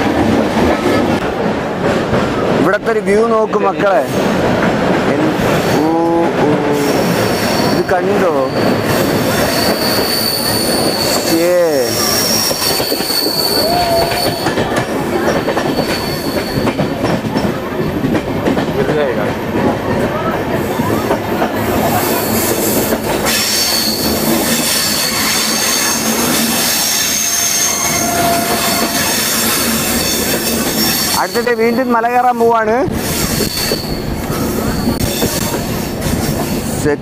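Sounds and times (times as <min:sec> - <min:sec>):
train carriage rumble and rattle: 0:00.0 - 0:37.0
wheels squealing on rails: 0:05.2 - 0:18.9, 0:19.8 - 0:36.9.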